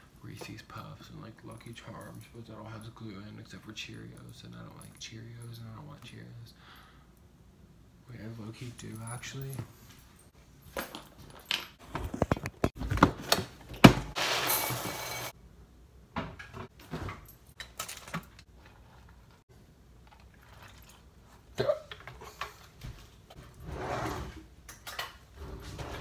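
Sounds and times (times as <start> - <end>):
kitchen handling clatter: 16.2 - 19.1.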